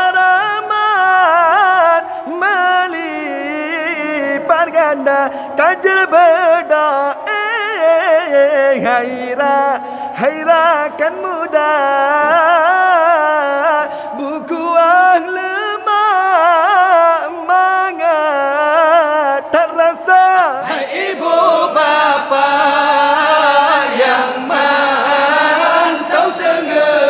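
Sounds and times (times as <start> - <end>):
man chanting into a microphone: 0.0 - 27.0
group of men singing: 10.2 - 27.0.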